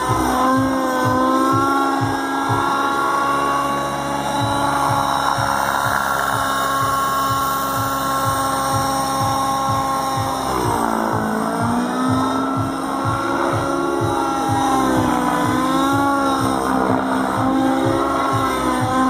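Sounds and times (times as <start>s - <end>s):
low rotor throb: 0.0s - 19.0s
model helicopter engine whining: 0.0s - 19.0s.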